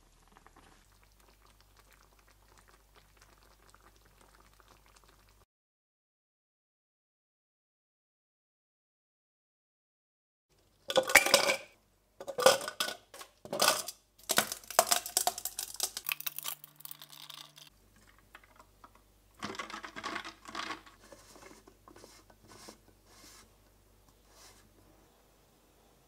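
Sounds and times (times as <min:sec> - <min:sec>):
ice cubes clinking into tumbler: 0:10.9 - 0:18.6, 0:19.4 - 0:21.0
ice rattling as drink stirred: 0:10.9 - 0:18.7, 0:19.4 - 0:21.6
ice and water pouring in: 0:13.6 - 0:18.7, 0:19.4 - 0:21.0.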